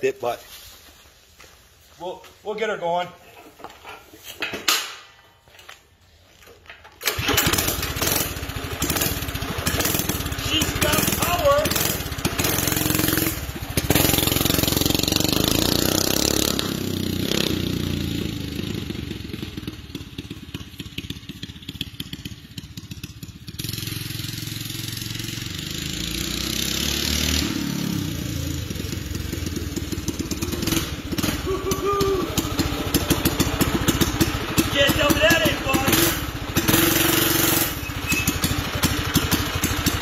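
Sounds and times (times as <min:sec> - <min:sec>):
small engine revving: 0:07.1 - 0:21.5, 0:22.8 - 0:40.0.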